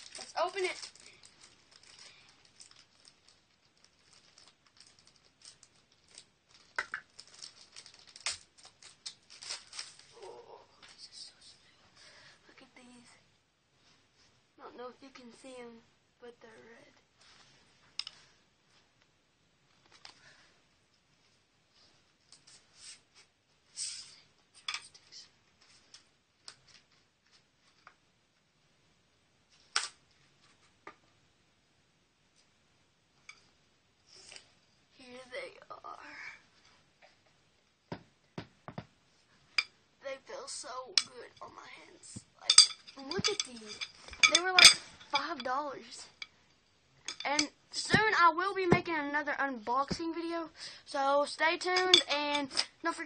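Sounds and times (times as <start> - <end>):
packaging rustling: 0.0 - 10.2
sharp snaps: 29.7 - 30.0.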